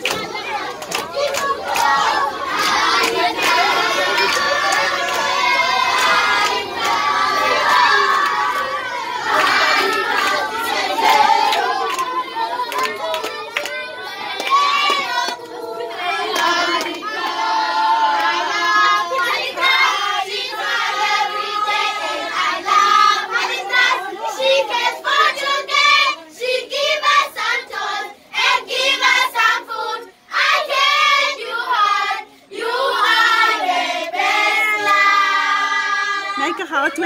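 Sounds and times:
hand-clapping: 0:00.0 - 0:15.6, 0:16.2 - 0:17.5, 0:18.1 - 0:19.7
children singing and shouting: 0:00.0 - 0:37.0.

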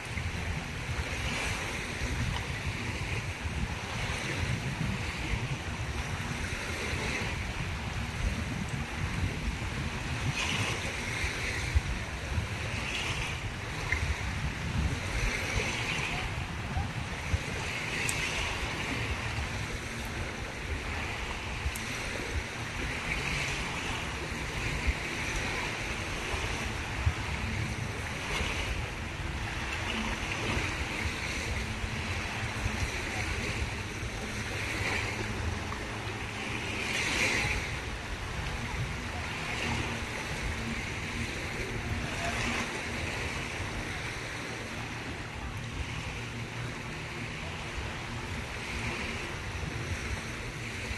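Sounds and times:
waves washing onto beach: 0:00.0 - 0:50.9.

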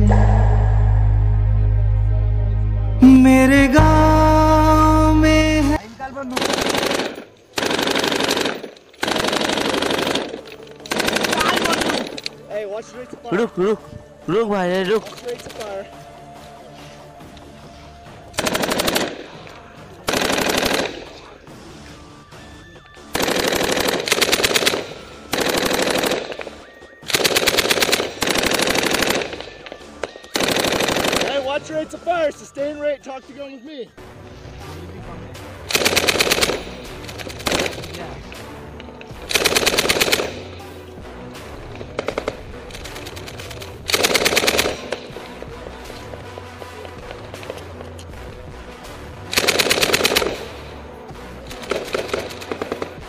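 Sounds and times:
music track: 0:00.0 - 0:05.8
machine-gun fire: 0:06.3 - 0:12.2, 0:18.4 - 0:19.4, 0:20.1 - 0:21.2, 0:23.2 - 0:31.4, 0:35.7 - 0:38.1, 0:39.2 - 0:40.6, 0:41.8 - 0:45.2, 0:49.3 - 0:50.7, 0:51.5 - 0:53.0.

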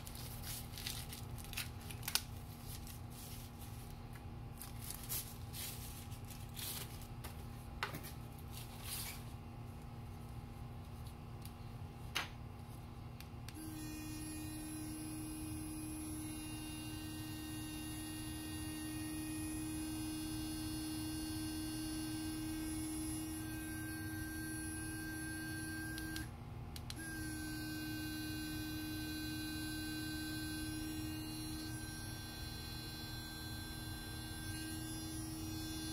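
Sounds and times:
electric toothbrush buzzing: 0:00.0 - 0:01.2, 0:13.5 - 0:26.3, 0:26.9 - 0:35.9.

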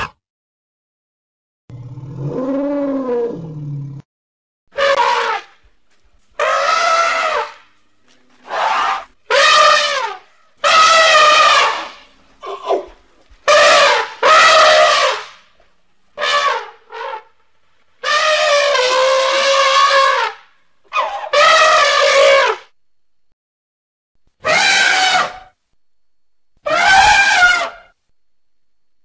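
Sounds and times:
elephant-like trumpet calls: 0:04.7 - 0:05.6, 0:06.4 - 0:07.7, 0:08.4 - 0:15.5, 0:16.2 - 0:17.4, 0:18.0 - 0:22.7, 0:24.4 - 0:25.6, 0:26.6 - 0:28.0.

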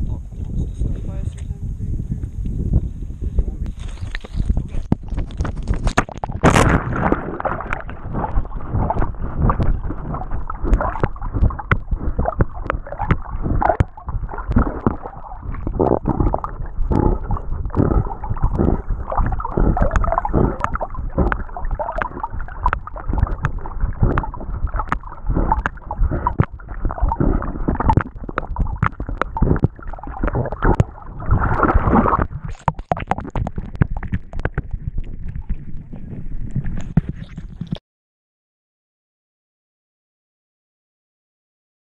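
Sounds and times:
water sloshing and gurgling: 0:03.6 - 0:37.8
dog paddling splashes: 0:06.0 - 0:35.3.

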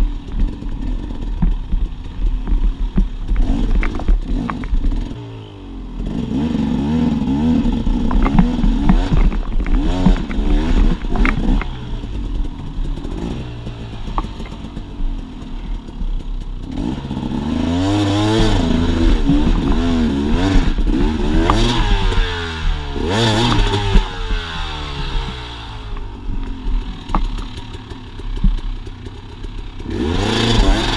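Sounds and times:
dirt bike engine revving: 0:00.0 - 0:30.9
bike knocking on rock: 0:01.2 - 0:05.0, 0:08.0 - 0:11.8, 0:26.0 - 0:27.7.

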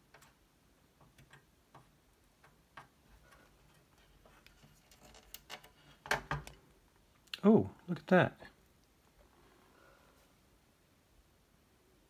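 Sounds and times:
small clicks and taps: 0:00.0 - 0:06.6.

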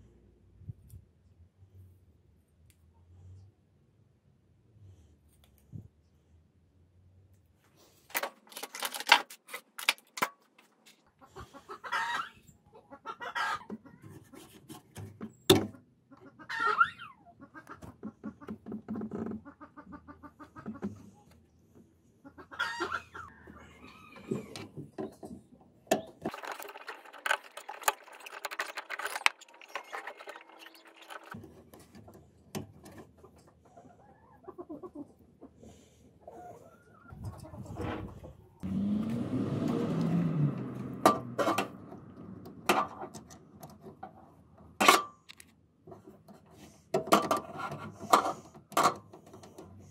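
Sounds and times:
plastic and metal parts clicking: 0:08.1 - 0:10.5, 0:25.9 - 0:33.0
chickens clucking: 0:11.0 - 0:14.7, 0:16.0 - 0:24.8, 0:33.1 - 0:38.6.

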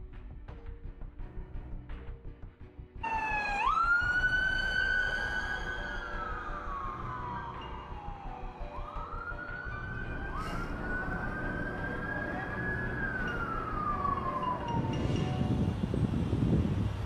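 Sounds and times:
siren wailing: 0:03.0 - 0:15.8
vehicle passing rumble: 0:09.2 - 0:17.0.

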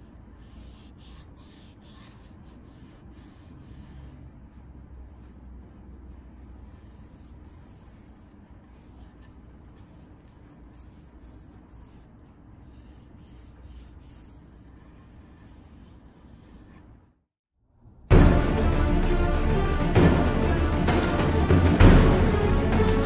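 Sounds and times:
foam brush rubbing strokes: 0:00.0 - 0:04.3, 0:06.4 - 0:17.0.

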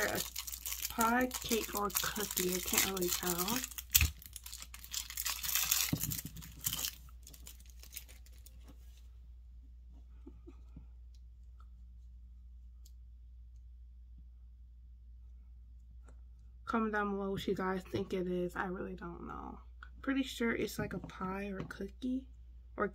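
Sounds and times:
plastic wrapper crinkling and tearing: 0:00.0 - 0:08.9.

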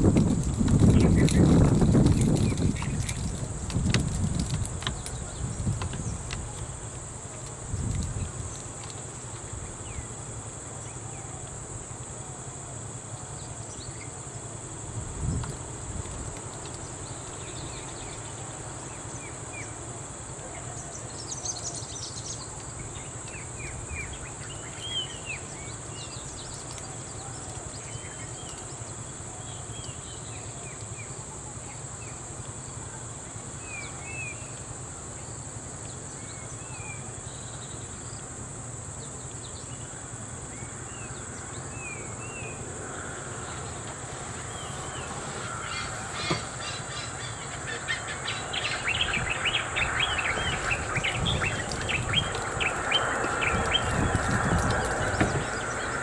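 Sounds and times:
insects droning: 0:00.0 - 0:56.0
low rumbles: 0:42.6 - 0:56.0
bird chirps: 0:44.3 - 0:56.0.

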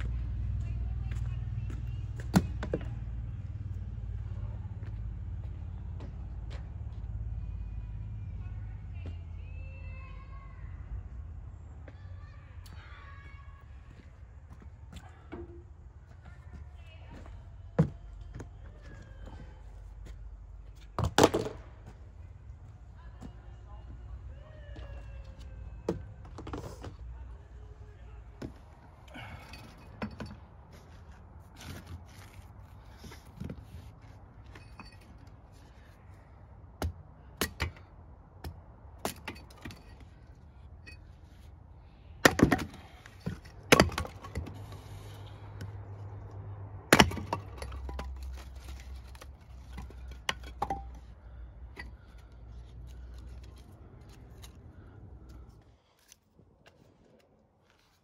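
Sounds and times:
firewood cracking and knocking: 0:42.2 - 0:44.6, 0:46.9 - 0:51.1.

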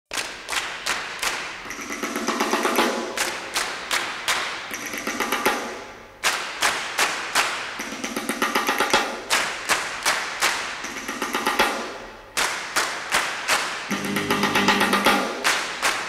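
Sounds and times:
pitched percussion: 0:00.1 - 0:16.0
quick drum beat music: 0:01.7 - 0:03.4, 0:04.7 - 0:05.8, 0:07.8 - 0:09.4, 0:10.8 - 0:12.0, 0:13.9 - 0:15.5.

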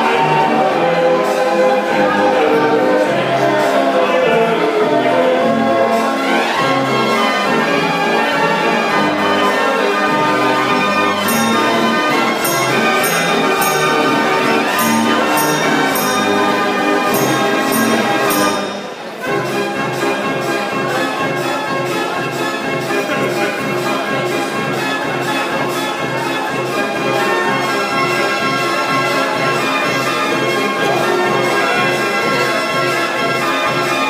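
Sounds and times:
street organ playing: 0:00.0 - 0:34.0
percussion strikes: 0:10.6 - 0:33.0.

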